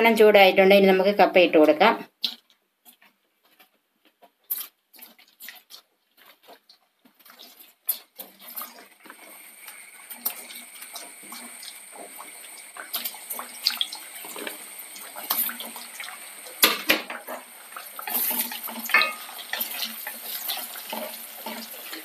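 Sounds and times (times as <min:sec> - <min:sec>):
food sizzling in hot oil: 0:04.5 - 0:22.0.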